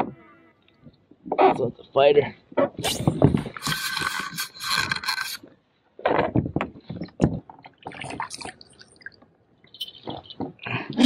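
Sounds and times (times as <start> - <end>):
knocks and scrapes on plastic kayak: 6.0 - 8.3.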